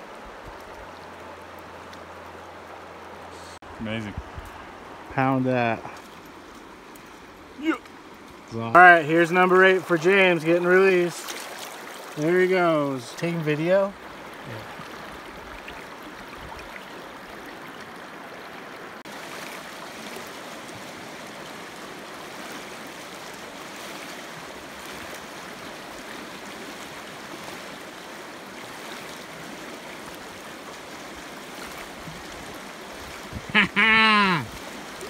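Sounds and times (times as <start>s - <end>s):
river running over rocks: 0.0s - 35.0s
man whooping: 7.6s - 7.8s, 33.5s - 34.5s.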